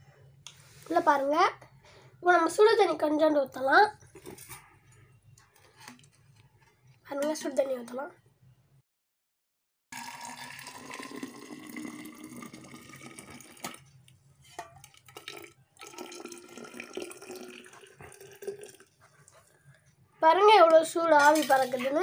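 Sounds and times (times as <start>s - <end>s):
water pouring into flask: 10.0s - 13.9s, 14.8s - 18.9s, 21.2s - 22.0s.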